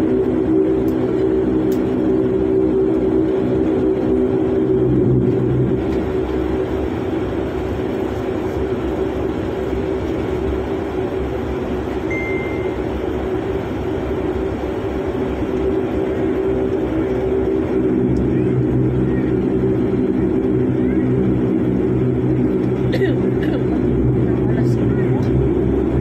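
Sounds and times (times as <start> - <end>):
jet engines and cabin hum: 0.0 - 26.0
brief high beep: 12.1 - 12.8.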